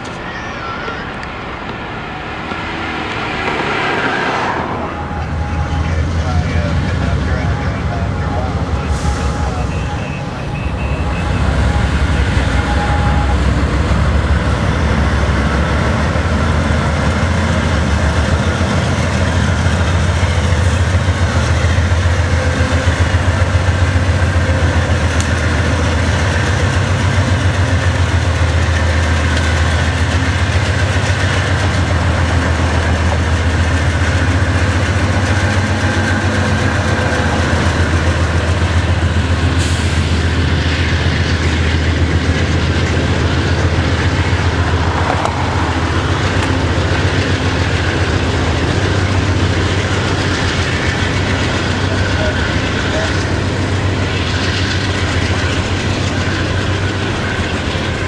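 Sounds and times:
diesel locomotives passing: 0:00.0 - 0:58.0
freight train wheels rumbling on rail: 0:00.0 - 0:58.0.

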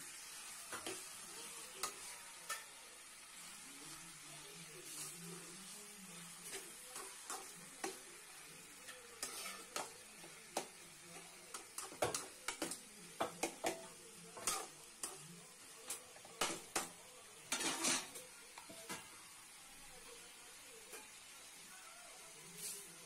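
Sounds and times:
faint sizzle: 0:00.0 - 0:23.0
spoon scraping metal pot: 0:17.5 - 0:18.2.

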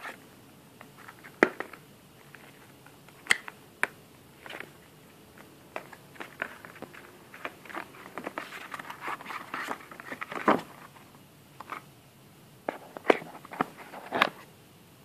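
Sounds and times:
cardboard and paper rustling: 0:04.4 - 0:04.8, 0:05.4 - 0:11.8, 0:12.7 - 0:14.5.

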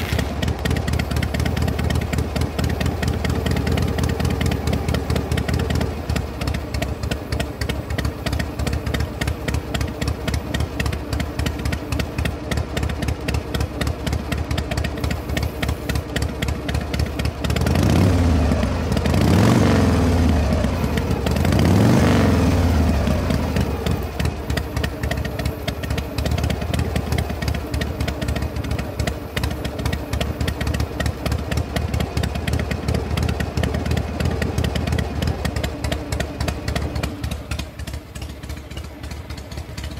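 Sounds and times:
engine revving: 0:00.0 - 0:01.6, 0:17.4 - 0:24.6
engine idling: 0:00.0 - 0:39.9.

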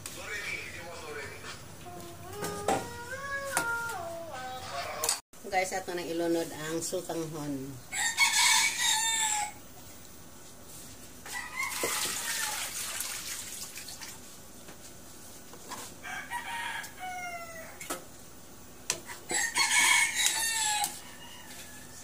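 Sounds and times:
roosters crowing: 0:07.9 - 0:09.7, 0:11.2 - 0:12.8, 0:16.0 - 0:17.9, 0:19.0 - 0:22.0.

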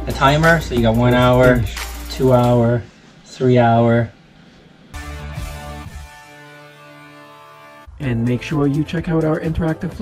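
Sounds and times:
struck chord ringing: 0:05.0 - 0:09.0.

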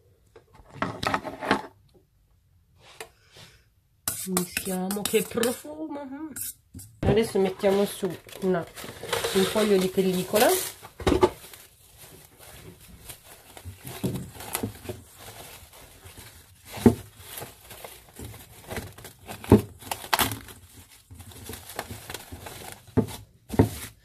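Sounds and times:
cling film crinkling: 0:07.6 - 0:23.0.

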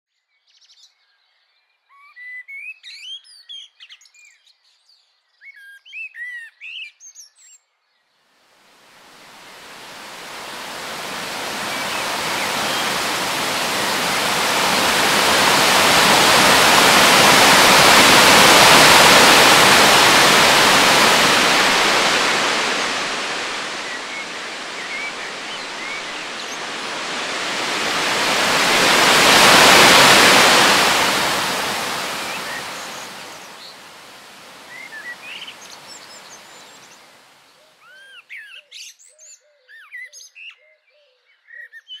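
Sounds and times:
waterfall roaring: 0:09.2 - 0:36.9.

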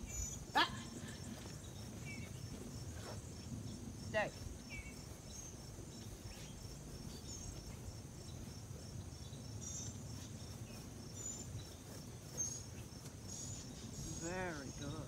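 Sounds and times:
pulsing insect chorus: 0:00.0 - 0:15.0.

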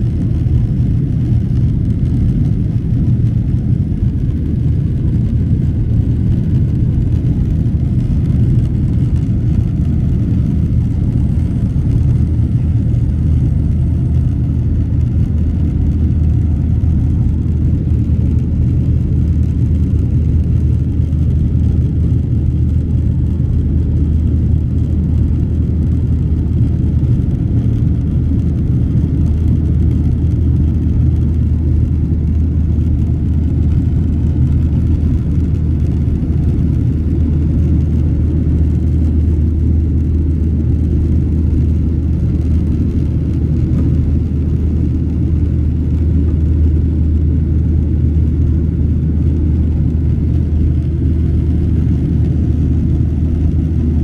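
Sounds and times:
airplane cabin engine rumble: 0:00.0 - 0:54.0.

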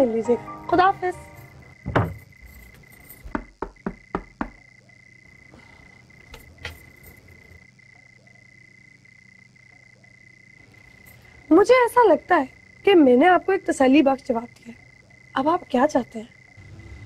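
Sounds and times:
crickets chirping: 0:00.0 - 0:17.0
knocks on wooden door: 0:01.8 - 0:02.3, 0:03.3 - 0:04.6.

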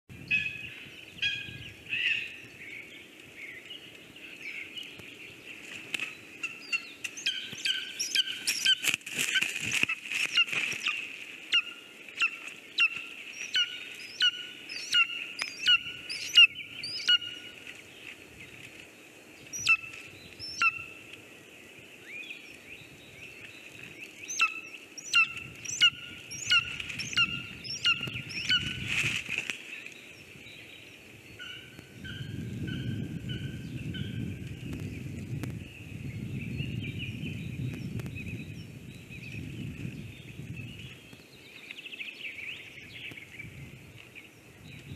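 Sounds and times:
eagles calling: 0:06.3 - 0:17.8, 0:19.5 - 0:21.1, 0:24.2 - 0:28.9, 0:31.4 - 0:34.2.

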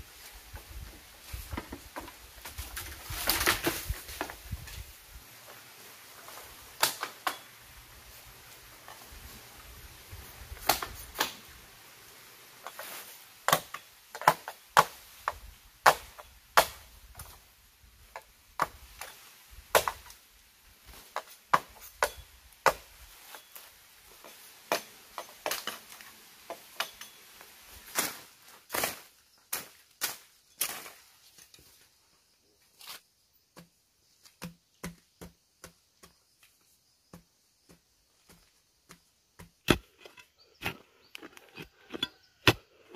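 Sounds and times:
bamboo cracking: 0:01.6 - 0:04.8, 0:06.4 - 0:07.5, 0:10.5 - 0:11.6
machete chopping bamboo: 0:06.8 - 0:07.5, 0:10.6 - 0:11.4, 0:13.5 - 0:17.4, 0:19.7 - 0:20.2, 0:21.1 - 0:23.0, 0:24.7 - 0:25.9, 0:33.6 - 0:36.2, 0:37.1 - 0:40.2.

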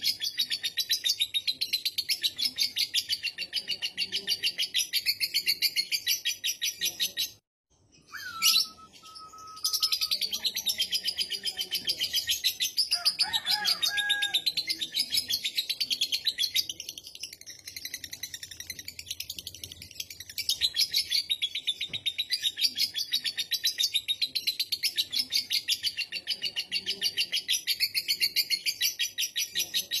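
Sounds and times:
short whistled bird note: 0:08.1 - 0:09.9.

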